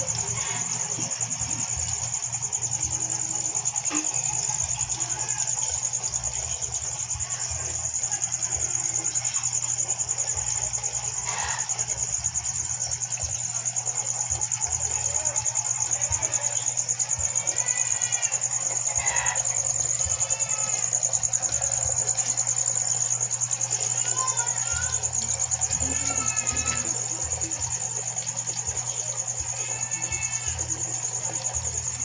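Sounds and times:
cricket trilling: 0:00.0 - 0:32.0.

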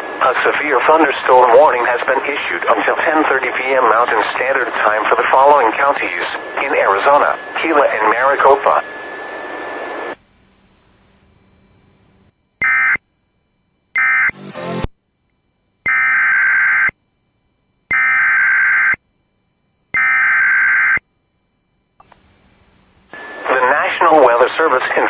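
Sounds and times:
digital data tone bursts: 0:12.6 - 0:13.0, 0:14.0 - 0:14.9.

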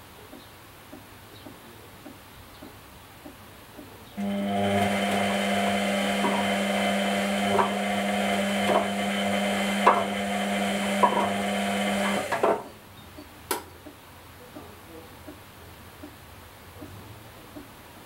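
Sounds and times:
washing machine motor humming: 0:04.2 - 0:12.7.

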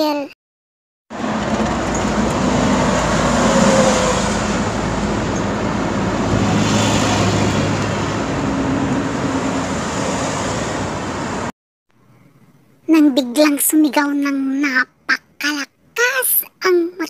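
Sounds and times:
vehicle engine hum: 0:01.1 - 0:11.5
road noise: 0:01.1 - 0:13.2.

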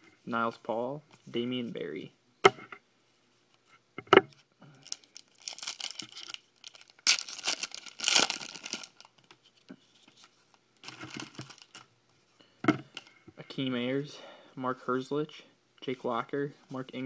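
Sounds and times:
foil wrapper crinkling and tearing: 0:04.8 - 0:09.4, 0:10.8 - 0:11.8.

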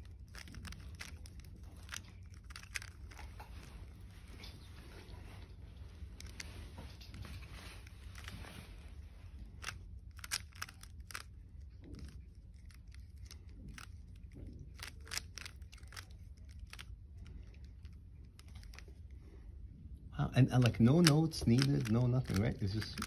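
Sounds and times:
puzzle cube layers clicking: 0:00.0 - 0:03.3, 0:09.6 - 0:11.4, 0:12.0 - 0:16.9, 0:20.6 - 0:23.0.

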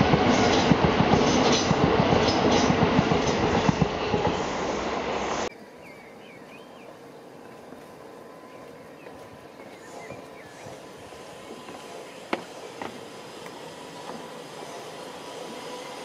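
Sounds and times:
train wheels clattering over rails: 0:00.0 - 0:04.5, 0:10.5 - 0:16.0.

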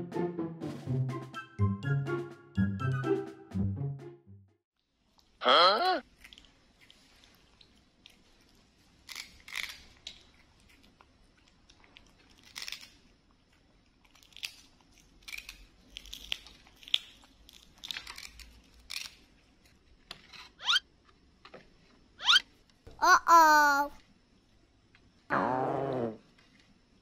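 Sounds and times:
monkeys chewing and smacking: 0:06.0 - 0:19.2.

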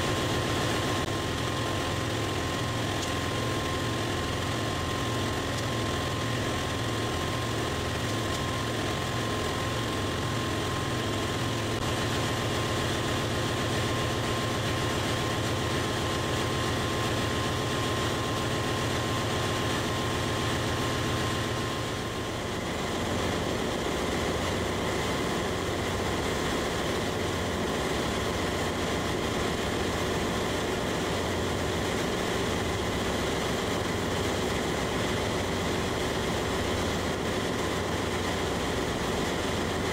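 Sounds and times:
engine room machinery drone: 0:00.0 - 0:39.9
high steady whine: 0:00.0 - 0:39.9.

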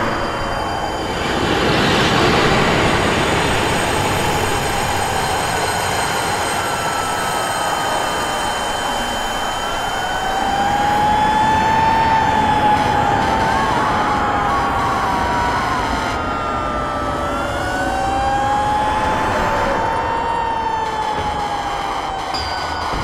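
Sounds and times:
high ringing tones: 0:00.0 - 0:13.6, 0:19.9 - 0:23.0
dense rushing roar: 0:00.0 - 0:23.0
siren wails: 0:00.0 - 0:23.0.

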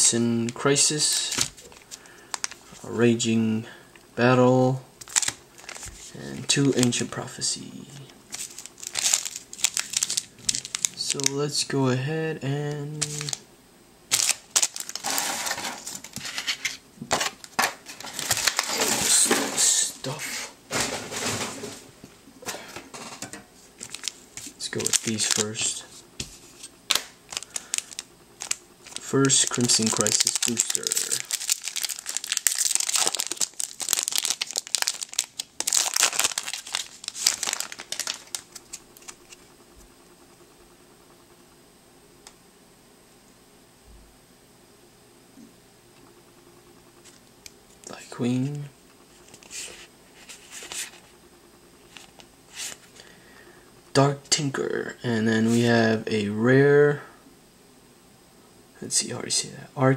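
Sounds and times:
foil packs crinkling: 0:00.9 - 0:02.9, 0:05.0 - 0:07.2, 0:07.9 - 0:11.4, 0:12.6 - 0:13.4, 0:14.1 - 0:39.5.

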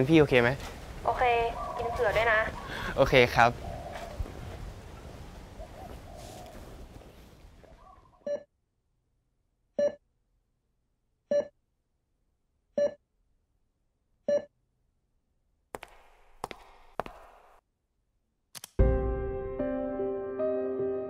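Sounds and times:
faint outdoor ambience: 0:00.0 - 0:08.4.

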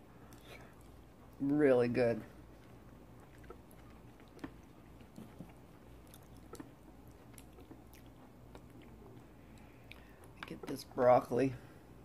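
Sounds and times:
chewing food: 0:00.2 - 0:01.5, 0:02.2 - 0:10.9
wet mouth clicks: 0:03.2 - 0:10.1.

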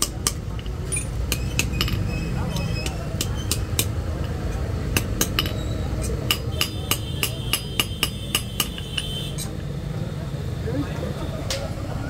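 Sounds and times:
hammer striking iron on anvil: 0:00.0 - 0:09.5.

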